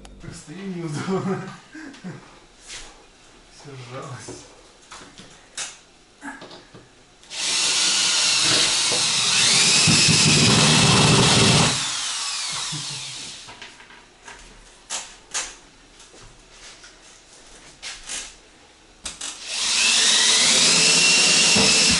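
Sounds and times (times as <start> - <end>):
power drill whining: 7.3 - 13.5, 19.2 - 21.9.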